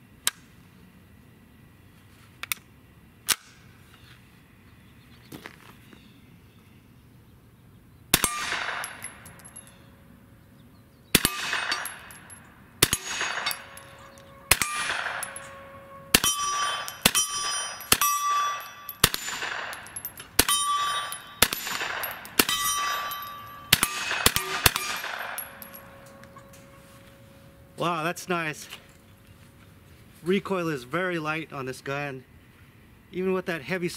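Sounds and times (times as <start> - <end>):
carbine shots echoing: 8.1 - 9.6, 11.1 - 26.4
steel targets ringing: 8.2 - 9.9, 11.2 - 28.8.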